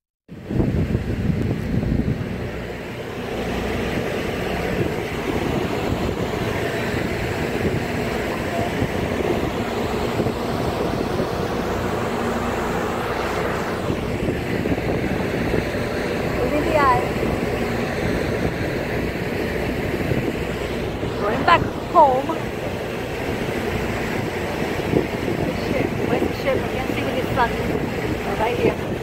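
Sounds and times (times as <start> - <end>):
boat engine droning: 0.3 - 29.0
constant rushing noise: 0.3 - 29.0.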